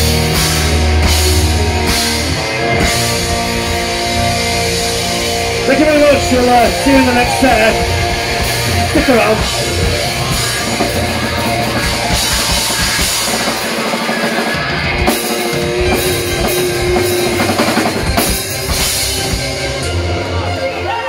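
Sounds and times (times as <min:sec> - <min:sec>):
live rock band playing: 0:00.0 - 0:21.0.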